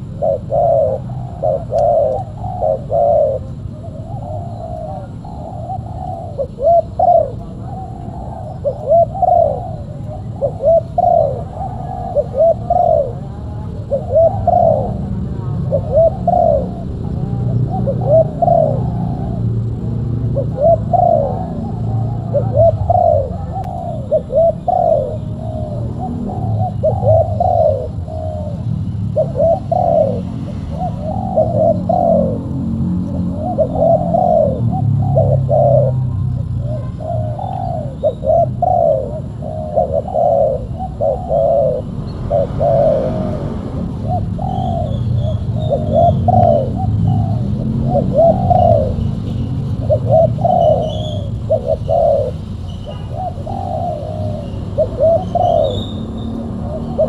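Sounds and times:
doves cooing: 0.0s - 57.0s.

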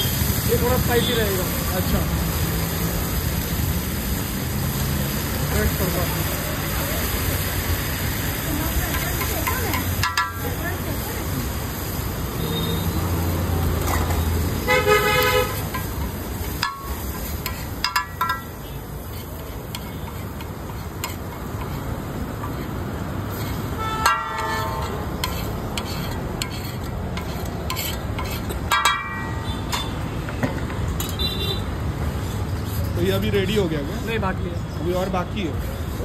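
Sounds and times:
road traffic: 0.0s - 36.0s
sizzling on griddle: 0.0s - 36.0s
spatula clinking in pan: 8.9s - 10.6s, 15.7s - 22.8s, 24.0s - 30.0s
car horns honking: 14.6s - 15.9s, 23.7s - 25.1s.

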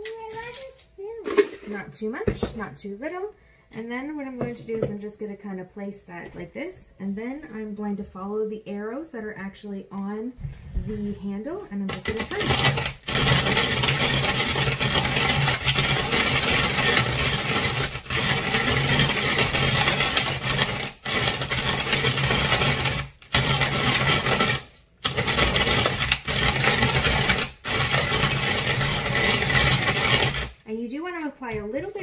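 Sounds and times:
coffee beans grinding: 11.9s - 30.6s.

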